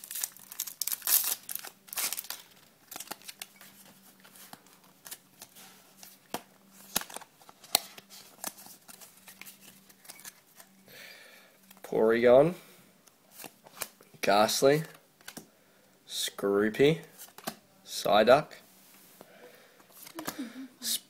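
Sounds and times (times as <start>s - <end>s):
foil wrapper rustling: 0.0s - 3.5s
faint steady hum: 0.0s - 21.0s.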